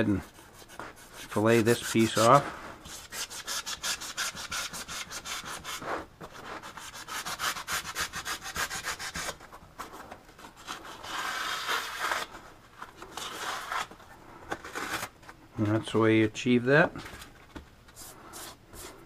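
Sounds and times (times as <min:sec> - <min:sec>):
knife sawing through foam: 0:00.2 - 0:09.4, 0:10.7 - 0:12.3.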